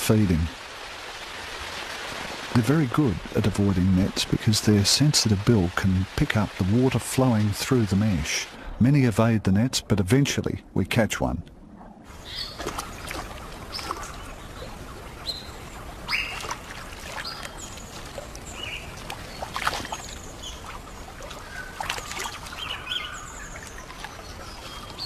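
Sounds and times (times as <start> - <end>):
high chirping calls: 12.2 - 16.6, 17.2 - 25.0
sharp splashes: 12.4 - 25.0.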